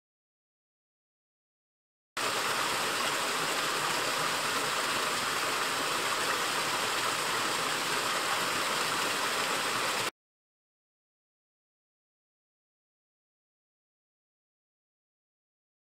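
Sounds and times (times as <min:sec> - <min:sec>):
water rushing down stream step: 0:02.2 - 0:10.1.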